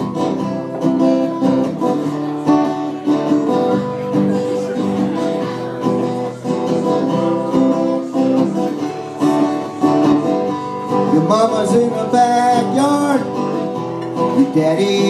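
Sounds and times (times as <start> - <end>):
acoustic guitar strumming: 0.0 - 15.0
man singing: 2.9 - 15.0.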